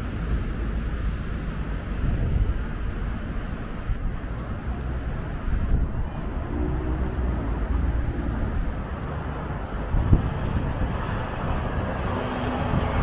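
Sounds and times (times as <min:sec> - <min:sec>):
road traffic noise: 0:00.0 - 0:13.0
wind rumbling on microphone: 0:00.0 - 0:13.0.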